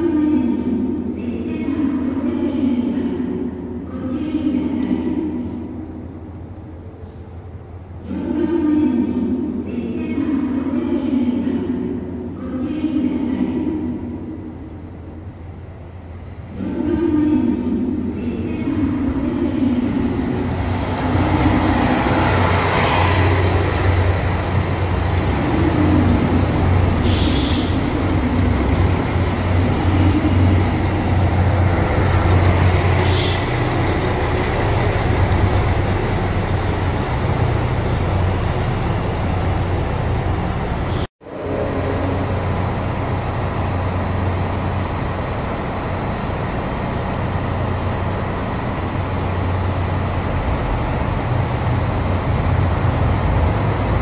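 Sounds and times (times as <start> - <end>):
diesel train engine droning: 0.0 - 54.0
diesel train idling: 14.4 - 54.0.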